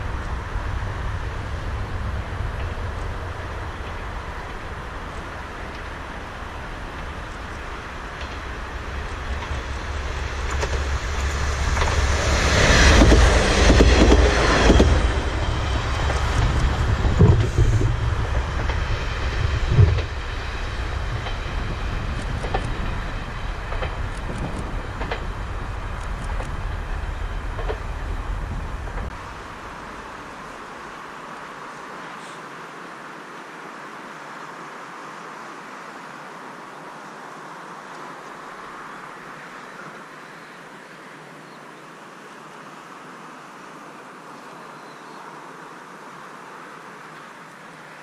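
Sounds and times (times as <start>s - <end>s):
quiet hiss: 0.0s - 13.6s.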